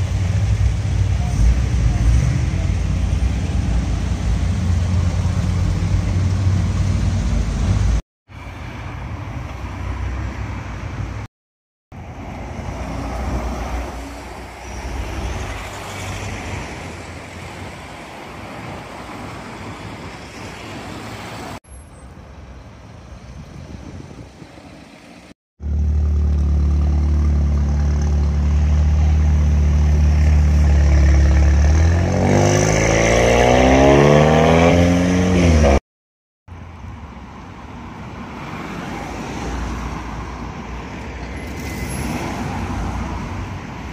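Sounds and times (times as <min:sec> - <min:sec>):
loud car engine revving: 0:25.6 - 0:35.8
cars driving past: 0:36.8 - 0:43.9.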